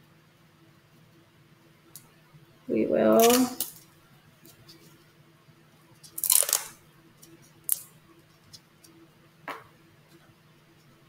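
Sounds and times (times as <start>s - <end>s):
packaging rustling: 6.1s - 6.8s.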